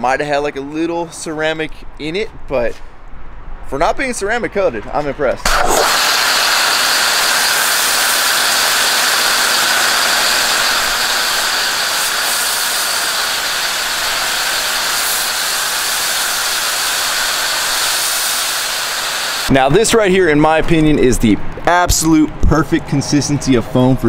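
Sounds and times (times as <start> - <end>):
foam cannon spraying hiss: 5.5 - 19.5.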